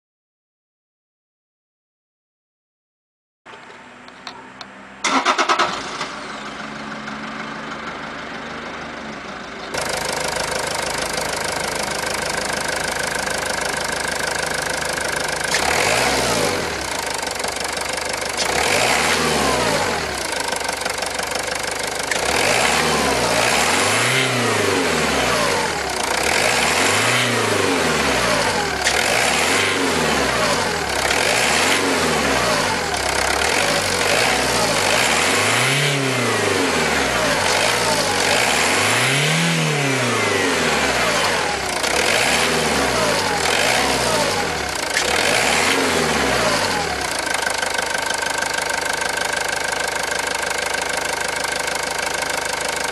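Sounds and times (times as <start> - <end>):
car engine idling: 3.5 - 35.4, 39.9 - 52.9
diesel engine starting: 3.5 - 52.9
engine revving: 5.0 - 8.0, 9.7 - 52.9.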